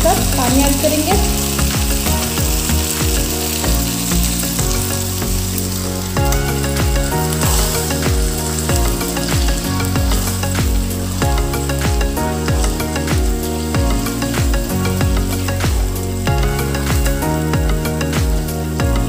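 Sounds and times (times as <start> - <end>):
water pouring: 0.0 - 18.8
food sizzling in a pan: 0.0 - 19.0
music with steady beat and bass: 0.0 - 19.0.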